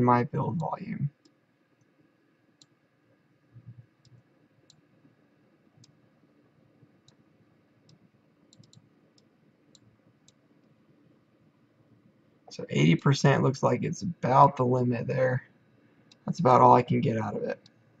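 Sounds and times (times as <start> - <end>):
computer mouse clicks: 7.9 - 10.8.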